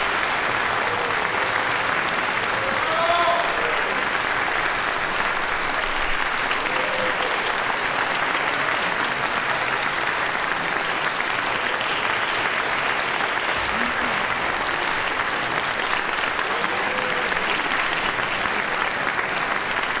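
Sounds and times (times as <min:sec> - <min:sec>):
audience applauding: 0:00.0 - 0:20.0
faint crowd voices: 0:06.5 - 0:20.0.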